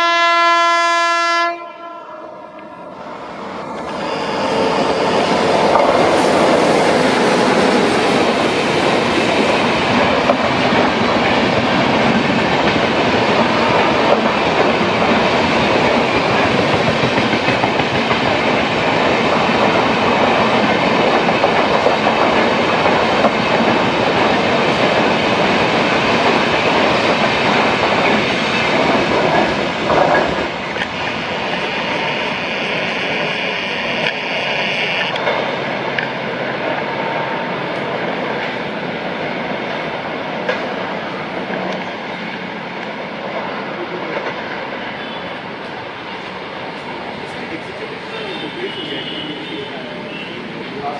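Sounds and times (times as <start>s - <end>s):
train wheels rushing on rails: 2.4s - 50.9s.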